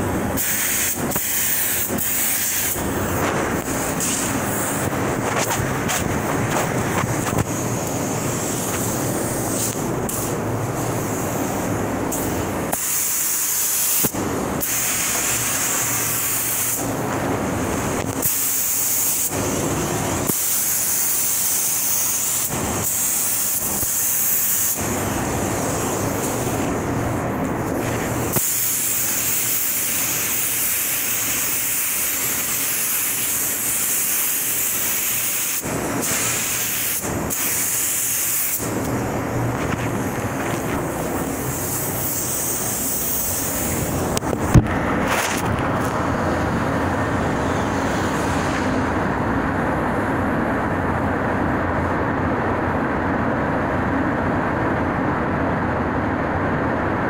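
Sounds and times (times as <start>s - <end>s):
paint spray gun hissing: 0.4s - 17.0s, 18.2s - 26.9s, 27.8s - 44.5s
low steady rumble: 38.6s - 57.0s.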